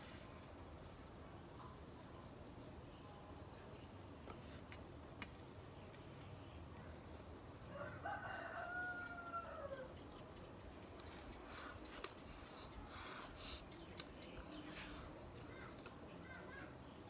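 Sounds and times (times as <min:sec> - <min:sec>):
rooster crowing: 0:07.6 - 0:10.0.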